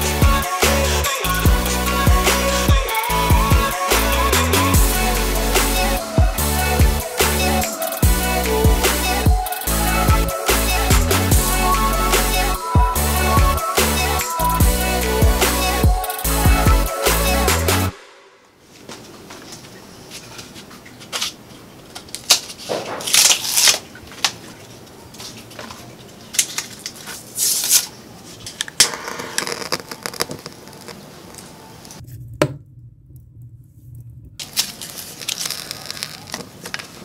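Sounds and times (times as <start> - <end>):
scraping and tearing: 22.1 - 24.5, 34.4 - 37.0.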